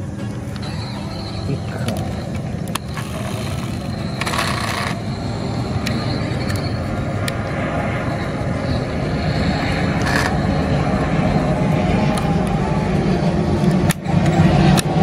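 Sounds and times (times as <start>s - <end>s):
steady low rumble: 0.0s - 15.0s
toy car scraping: 0.6s - 6.8s, 9.9s - 10.6s.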